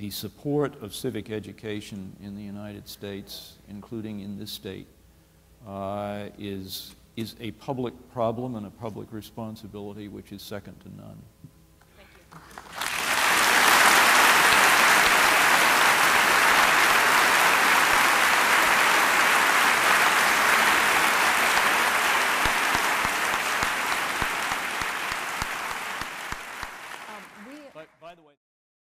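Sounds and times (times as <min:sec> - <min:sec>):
audience applauding: 0:12.3 - 0:27.9.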